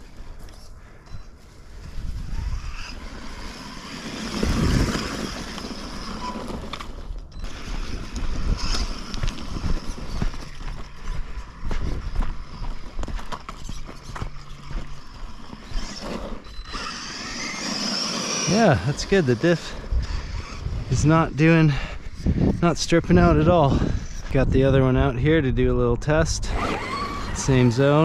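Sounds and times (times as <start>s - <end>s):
electric motor and gear whine: 0.0s - 24.8s, 26.4s - 28.0s
tyres crunching over gravel: 3.0s - 22.1s.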